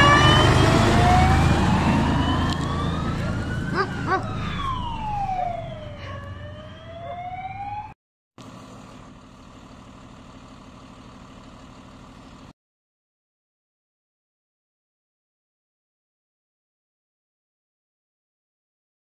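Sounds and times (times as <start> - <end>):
fire engine siren wailing: 0.0 - 8.0
fire engines running hum: 0.0 - 12.5.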